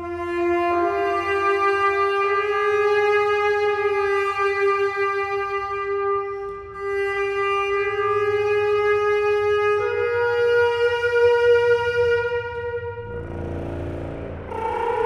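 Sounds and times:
contrabass clarinet sustained note: 0.0s - 15.0s.

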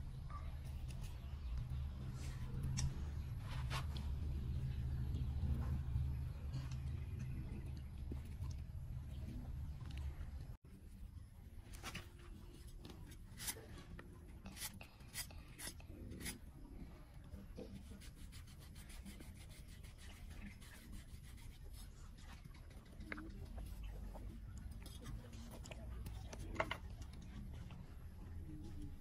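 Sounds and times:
knife scraping banana stalk: 14.5s - 16.4s.

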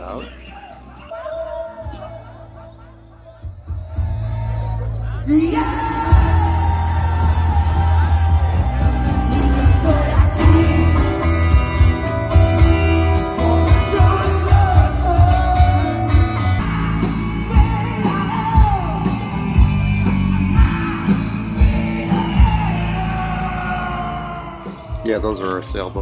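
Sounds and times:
heavy bass: 0.0s - 26.0s
live band playing loudly: 0.0s - 26.0s
lead singer singing: 0.4s - 2.7s, 5.0s - 25.4s
steady drumbeat: 5.5s - 23.6s, 24.7s - 26.0s.

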